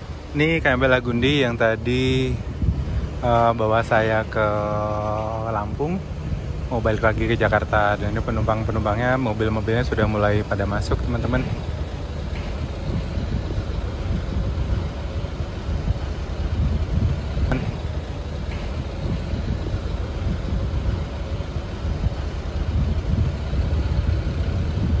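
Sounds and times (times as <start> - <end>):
faint machine hum: 0.0 - 25.0
vehicle engines rumbling: 0.0 - 25.0.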